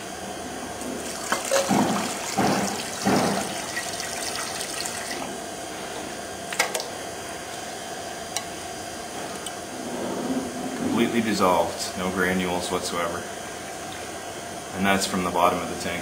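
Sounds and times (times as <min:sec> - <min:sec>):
liquid gushing into metal scoop: 0:00.8 - 0:05.3.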